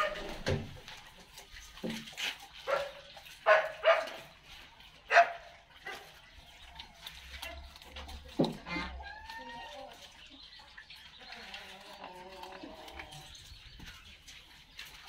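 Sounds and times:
dog barking: 0:02.6 - 0:04.2, 0:05.1 - 0:06.1.

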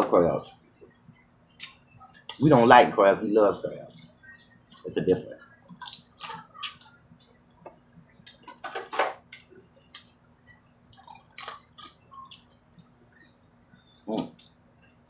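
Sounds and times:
chewing and lip smacks: 0:04.7 - 0:07.4, 0:09.3 - 0:12.6
crab shells cracking: 0:05.7 - 0:06.9, 0:11.0 - 0:12.5.

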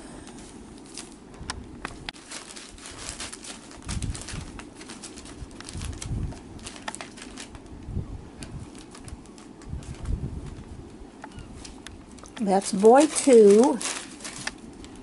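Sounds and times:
paper crinkling and rustling: 0:00.3 - 0:01.2, 0:01.8 - 0:10.8, 0:11.4 - 0:15.0.

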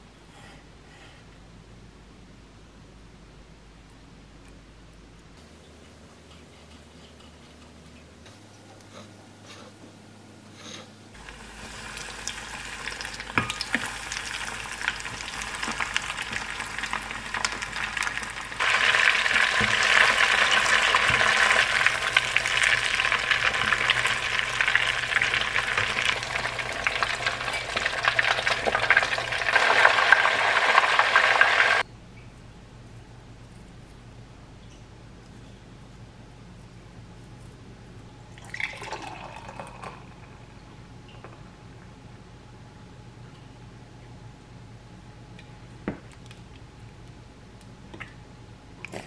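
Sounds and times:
deep-frying sizzle and pops: 0:11.2 - 0:31.9.

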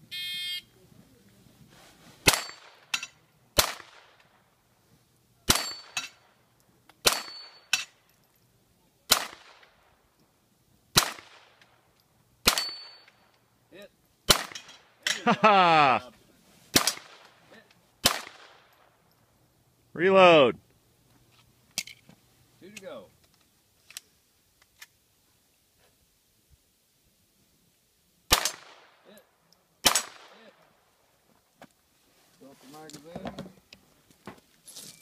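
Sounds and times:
handgun shots: 0:03.6 - 0:04.1, 0:05.5 - 0:06.1, 0:07.0 - 0:07.9, 0:09.1 - 0:09.6, 0:11.0 - 0:11.4, 0:12.4 - 0:13.0, 0:14.3 - 0:14.7, 0:18.0 - 0:18.6, 0:28.3 - 0:28.8, 0:29.8 - 0:30.4.

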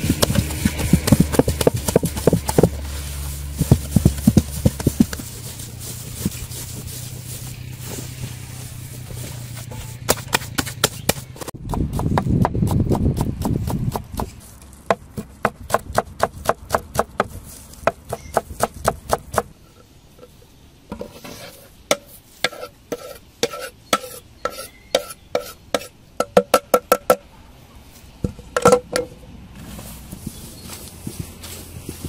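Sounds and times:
knife chopping on wooden board: 0:00.0 - 0:02.8, 0:10.0 - 0:19.5
hands kneading paste squelching: 0:00.0 - 0:10.5
knife scraping metal bowl: 0:21.0 - 0:26.0.

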